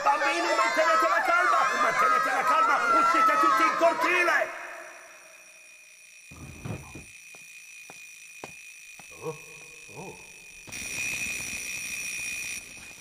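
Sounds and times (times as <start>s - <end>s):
muffled alarm clock ringing: 4.9s - 13.0s.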